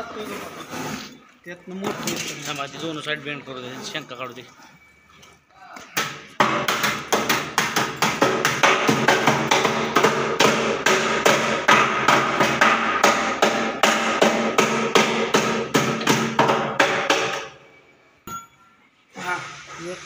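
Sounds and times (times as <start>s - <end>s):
hammer and mallet striking steel: 6.0s - 17.6s, 18.2s - 18.7s
steel ringing: 18.3s - 18.8s.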